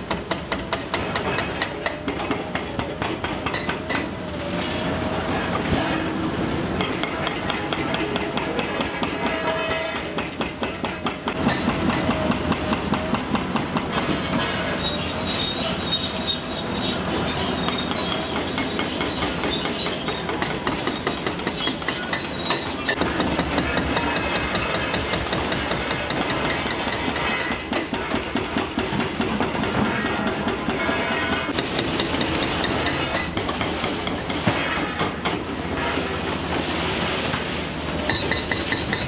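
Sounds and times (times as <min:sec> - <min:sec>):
metal squealing: 0:14.4 - 0:23.0.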